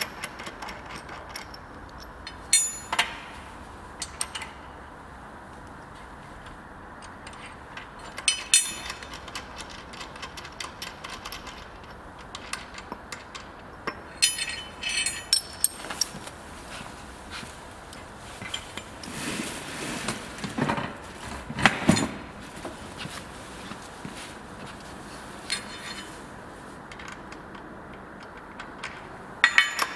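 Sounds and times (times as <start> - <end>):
spanner clinking on nuts and bolts: 0.0 - 3.4, 7.0 - 16.2, 26.9 - 29.9.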